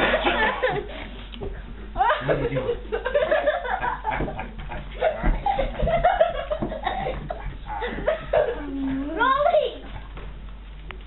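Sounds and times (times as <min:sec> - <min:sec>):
people laughing: 0:00.0 - 0:01.1, 0:01.9 - 0:08.9.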